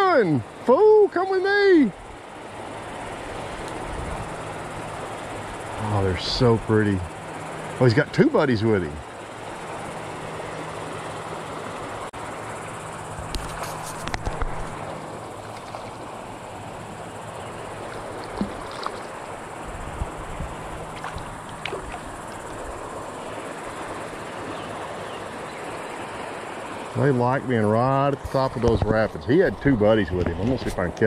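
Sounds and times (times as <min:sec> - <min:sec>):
creek water running over rapids: 0:00.0 - 0:31.0
clicks and splashes: 0:17.8 - 0:19.2, 0:20.9 - 0:22.2.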